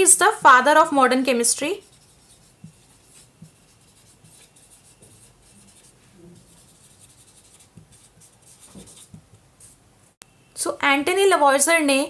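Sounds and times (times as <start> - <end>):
pen scratching on paper: 1.7 - 9.8.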